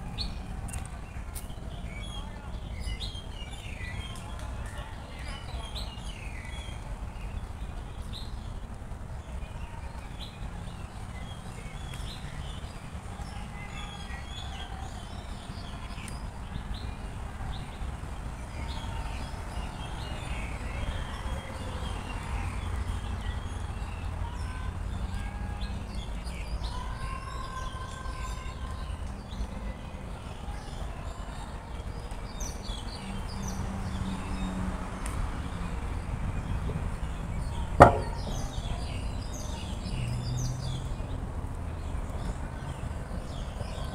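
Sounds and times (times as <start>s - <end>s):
distant traffic rumble: 32.1s - 43.9s.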